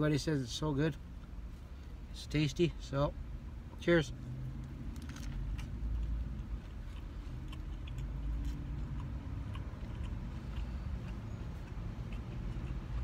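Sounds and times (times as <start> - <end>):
low vehicle rumble: 0.0 - 13.0
chewing with mouth clicks: 4.5 - 13.0.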